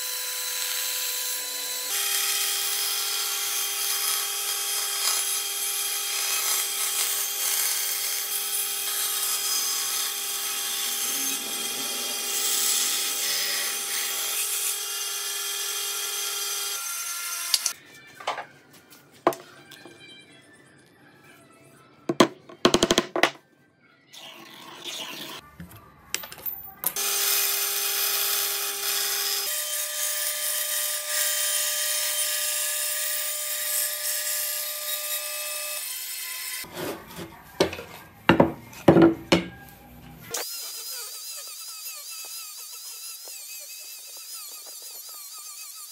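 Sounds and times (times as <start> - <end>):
band saw cutting wood: 0.0 - 17.8, 40.3 - 45.9.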